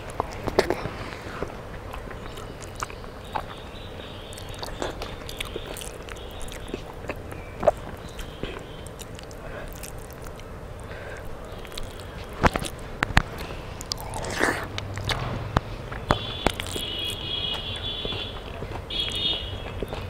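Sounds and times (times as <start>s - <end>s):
person chewing: 0.0s - 20.0s
wet rice squishing under fingers: 4.2s - 15.6s, 16.4s - 17.2s.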